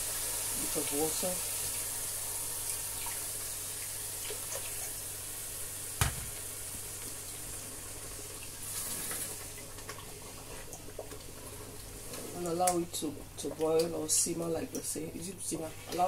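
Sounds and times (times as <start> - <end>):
sharp knock: 6.0 - 6.4
wooden spoon stirring thick mixture: 10.2 - 16.0.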